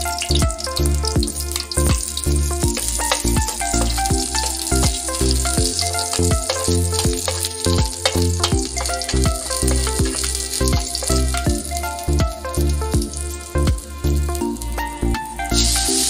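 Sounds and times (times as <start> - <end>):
background music with beat: 0.0 - 16.0
garlic and onion sizzling in oil: 1.1 - 11.7
spatula stirring in pan: 1.6 - 11.4.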